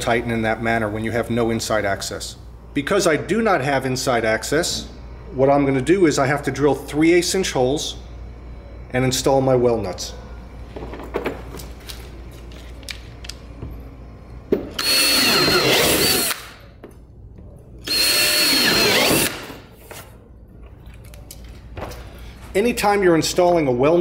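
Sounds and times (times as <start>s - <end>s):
cordless drill whining: 14.8s - 16.4s, 17.8s - 19.6s.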